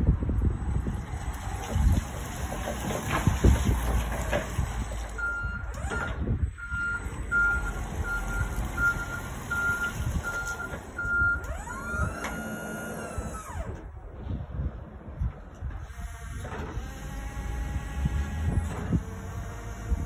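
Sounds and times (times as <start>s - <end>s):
forklift reversing alarm beeping: 4.8s - 13.8s.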